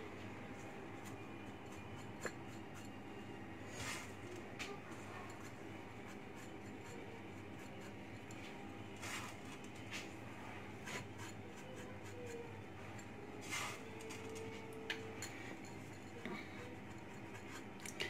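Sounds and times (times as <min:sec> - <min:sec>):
steady low hum: 0:00.0 - 0:18.0
dry scratchy rustles of pastry strands: 0:09.0 - 0:11.4.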